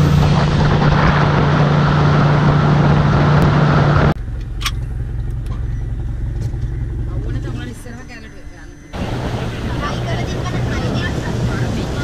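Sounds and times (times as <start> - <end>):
rushing wake water: 0.0 - 4.2, 8.9 - 12.0
motorboat engine running: 0.0 - 8.3, 8.9 - 12.0
wind: 0.0 - 12.0.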